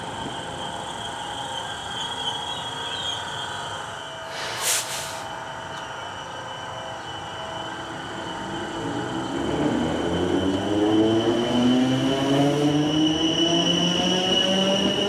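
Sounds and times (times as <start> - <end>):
electric train running past: 0.0 - 15.0
rail noise: 0.0 - 15.0
short hiss: 4.3 - 5.3.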